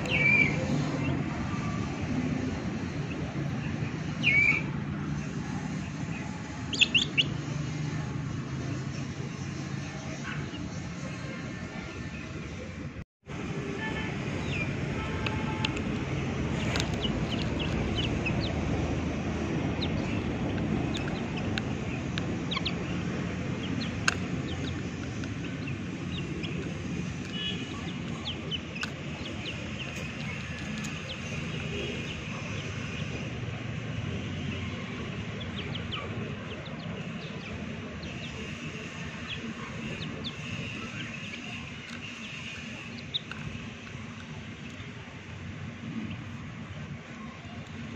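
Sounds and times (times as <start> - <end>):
chicks peeping: 2.9 - 7.5, 14.4 - 33.3, 35.3 - 45.4
steady low rumble: 14.2 - 34.2.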